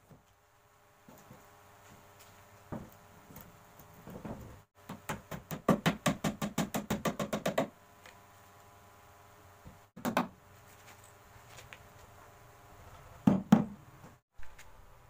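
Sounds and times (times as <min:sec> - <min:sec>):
hammer tapping on plywood: 0:04.9 - 0:07.7, 0:13.2 - 0:13.8.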